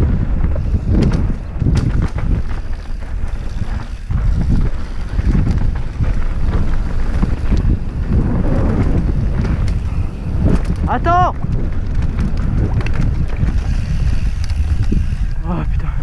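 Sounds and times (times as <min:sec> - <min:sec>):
tyres rumbling over dirt: 0:00.0 - 0:15.7
bike knocking and rattling: 0:00.0 - 0:16.0
wind buffeting microphone: 0:00.0 - 0:16.0.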